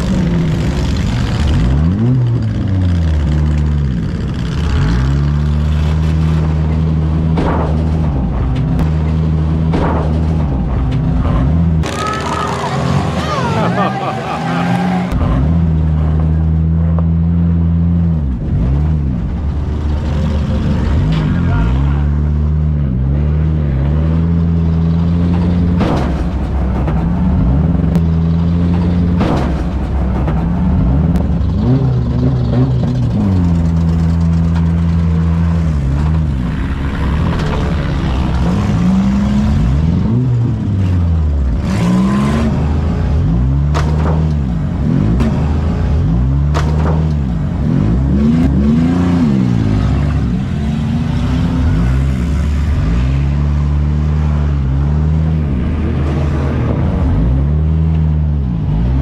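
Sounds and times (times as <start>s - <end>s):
car engines revving: 0.0s - 59.0s
cars crashing bangs: 6.0s - 15.6s, 25.2s - 33.0s.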